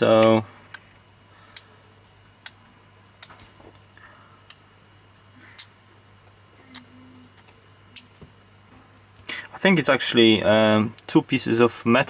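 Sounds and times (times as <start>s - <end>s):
small metal parts clicking: 5.5s - 5.9s
brief metallic ring: 8.0s - 8.5s.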